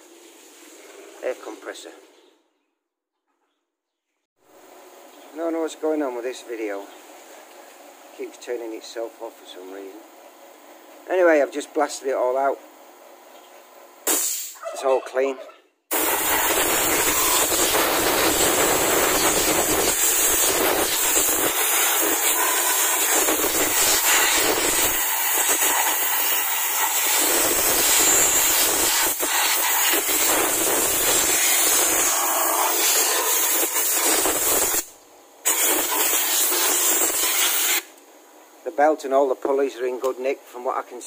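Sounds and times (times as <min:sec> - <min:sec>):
compressed air hissing: 0:14.1 - 0:14.6, 0:15.9 - 0:37.9.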